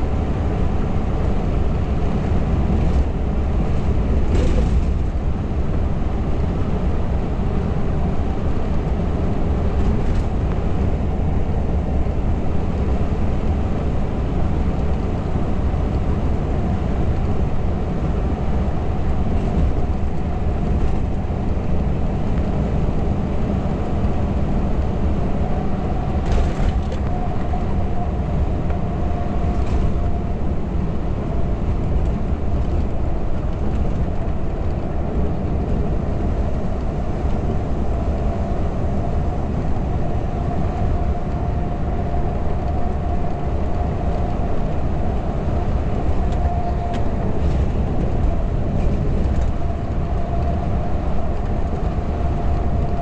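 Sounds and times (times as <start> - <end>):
tyre and road rumble: 0.0 - 53.0.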